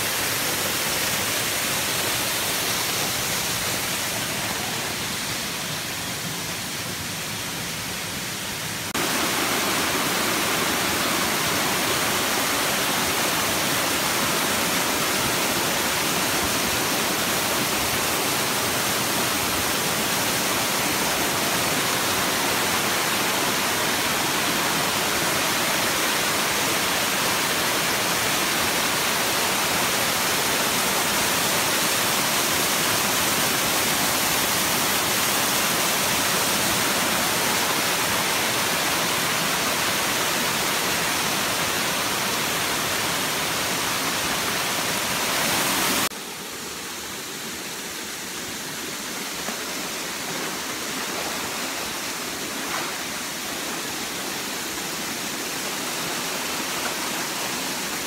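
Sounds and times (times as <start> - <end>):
water rushing down rocky cascade: 0.0 - 58.0.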